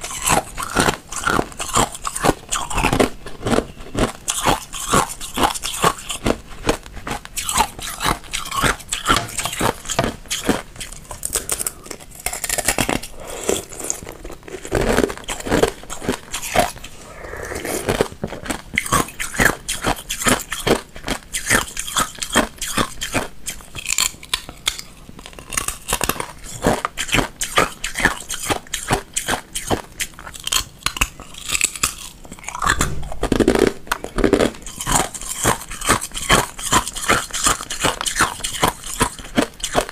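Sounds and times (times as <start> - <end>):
ice crunching between teeth: 0.0 - 39.9.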